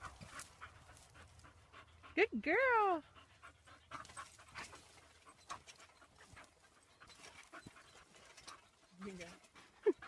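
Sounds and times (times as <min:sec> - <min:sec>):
dog panting: 0:00.0 - 0:10.0.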